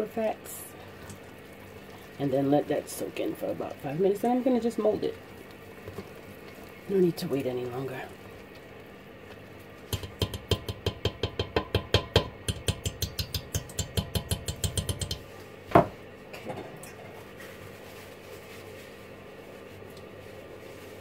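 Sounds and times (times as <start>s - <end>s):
whisk clacking against pot: 9.8s - 15.3s
sharp knock on pot: 9.9s - 15.9s.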